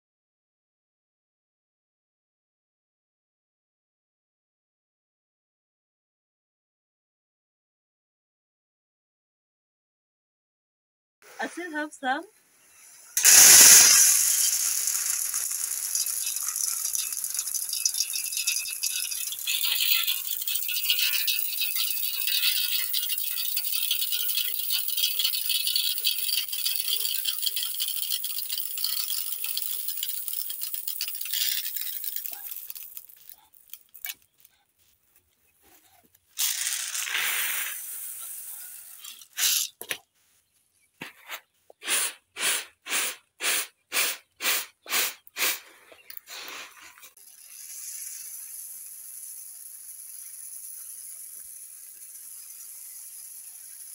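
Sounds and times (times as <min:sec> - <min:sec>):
grain pouring into metal basin: 0:12.7 - 0:34.2, 0:36.4 - 0:39.7, 0:46.3 - 0:53.9
grain rattling in winnowing tray: 0:12.8 - 0:34.5, 0:36.4 - 0:39.8, 0:46.3 - 0:53.9.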